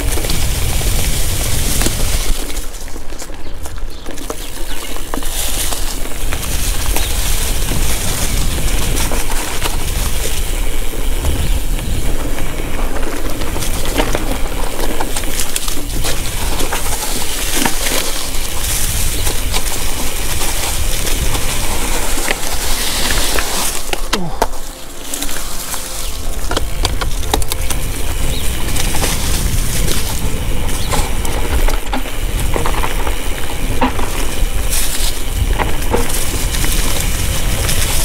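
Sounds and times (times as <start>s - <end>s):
bike clicking and rattling: 0.0s - 38.0s
wind noise rushing: 6.1s - 14.7s, 18.3s - 38.0s.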